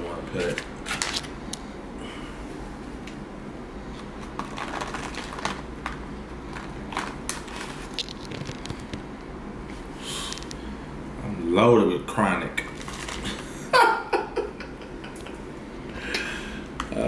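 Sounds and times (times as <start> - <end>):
low background hum: 0.0 - 17.0
plastic and foil bags crinkling: 0.3 - 1.4, 4.2 - 9.0, 12.6 - 13.6
small crackles: 4.2 - 9.1, 12.6 - 13.4.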